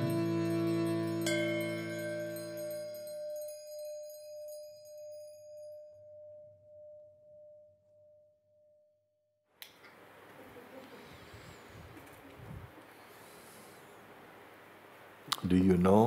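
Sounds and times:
bell-like ringing tone: 0.0s - 9.0s
faint room hiss: 9.6s - 16.0s.

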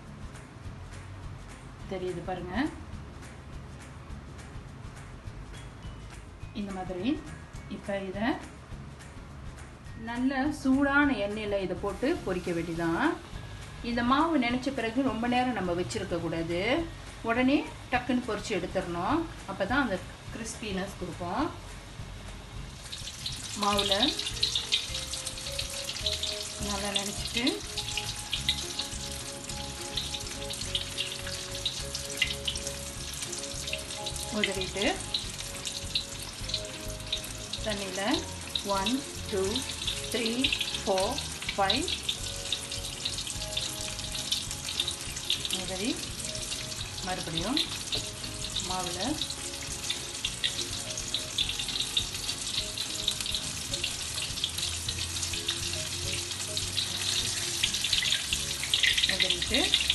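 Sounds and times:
faint background music: 0.0s - 59.9s
chicken frying in oil: 22.5s - 59.9s.

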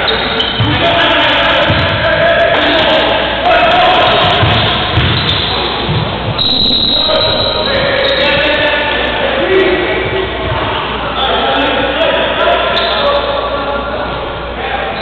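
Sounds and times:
voices: 0.0s - 15.0s
basketball dribbling on gym floor: 4.2s - 5.3s.

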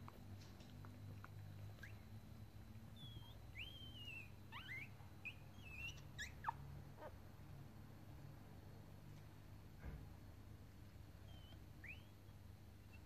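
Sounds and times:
low steady hum: 0.0s - 13.0s
puppies squeaking: 1.6s - 7.2s, 11.2s - 13.0s.

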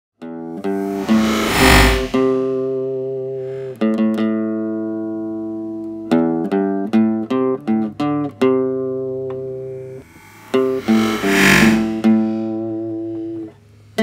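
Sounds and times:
plucked instrumental music: 3.8s - 10.8s.

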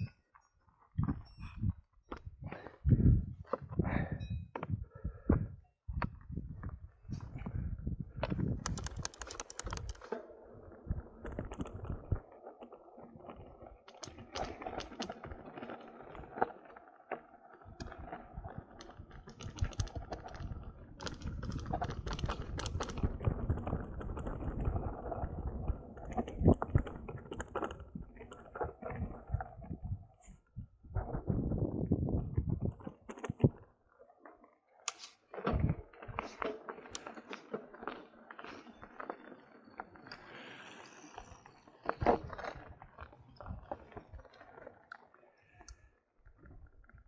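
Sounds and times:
bike clicking and rattling: 6.0s - 30.4s.

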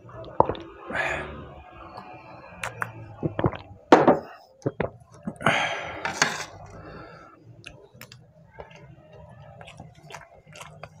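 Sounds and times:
metal spoon scraping rice: 6.0s - 6.7s.

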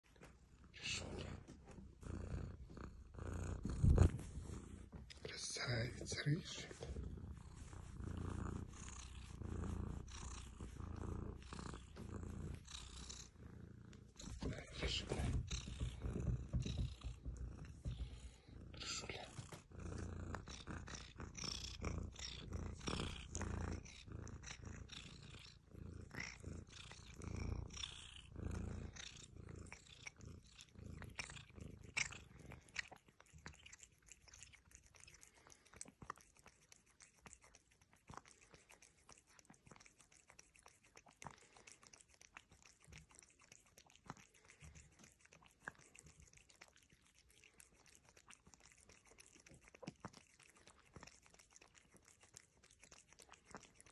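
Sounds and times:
cat purring: 0.0s - 53.9s
cat tongue clicks lapping: 31.0s - 53.9s.

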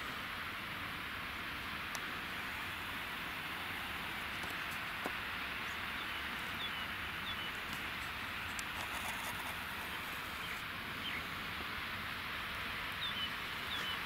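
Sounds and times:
rushing hiss of mountain air: 0.0s - 14.0s
high falling bird chirps: 5.6s - 7.7s, 13.0s - 14.0s.

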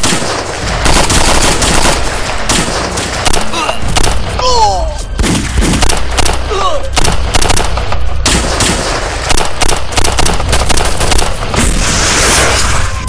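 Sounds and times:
rifle and machine-gun fire: 0.0s - 4.4s, 5.2s - 12.6s
rocket launcher blast: 10.3s - 13.0s.

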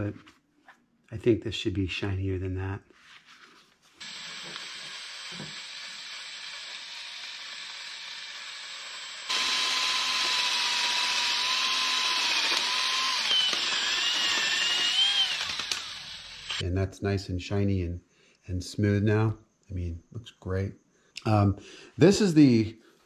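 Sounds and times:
drill polishing metal: 4.0s - 16.6s.

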